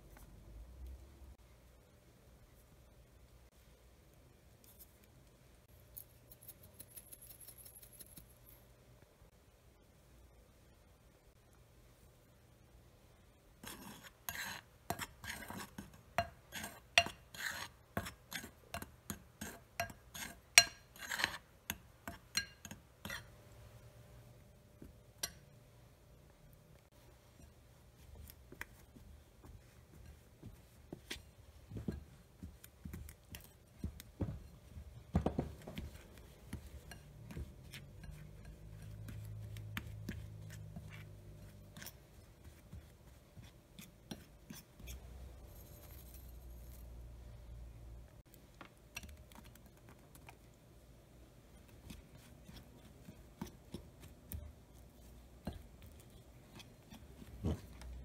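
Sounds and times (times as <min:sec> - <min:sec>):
fork scraping a ceramic bowl: 0:13.6 - 0:23.3, 0:36.2 - 0:46.0, 0:55.4 - 0:58.0.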